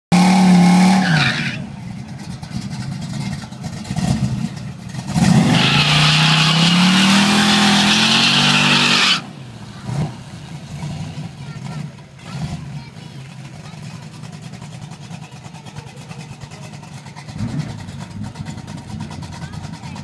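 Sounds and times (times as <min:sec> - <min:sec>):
car engine revving high: 0:00.1 - 0:01.7, 0:03.8 - 0:12.8
tyres spinning and squealing: 0:00.2 - 0:20.0.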